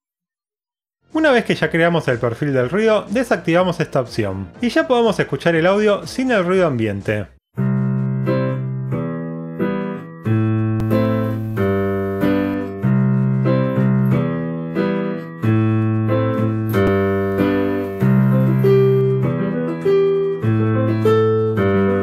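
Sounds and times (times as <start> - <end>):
piano notes and chords: 7.6 - 22.0.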